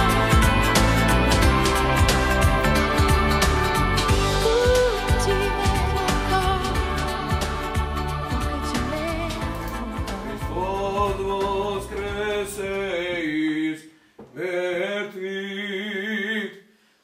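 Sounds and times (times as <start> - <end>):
song with beat and singing: 0.0 - 15.6.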